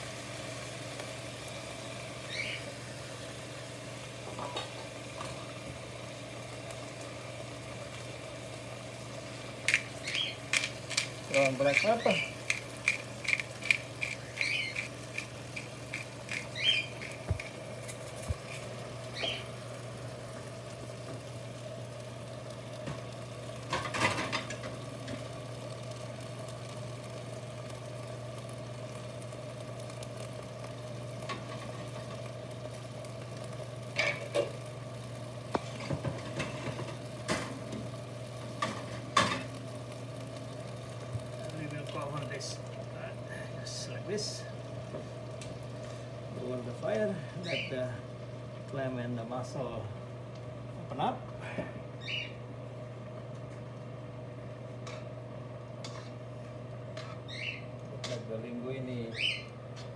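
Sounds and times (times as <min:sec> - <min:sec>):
steady low hum: 0:00.0 - 0:59.9
pepper mill grinding: 0:09.6 - 0:18.8.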